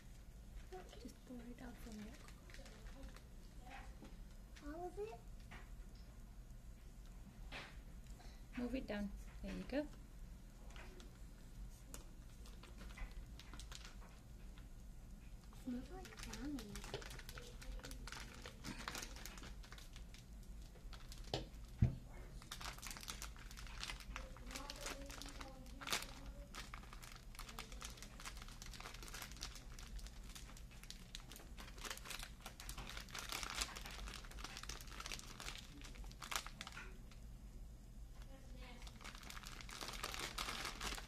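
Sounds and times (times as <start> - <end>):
foil pouch crinkling: 1.0 - 3.3, 11.8 - 14.2, 15.6 - 21.3, 22.4 - 36.9, 38.6 - 41.0.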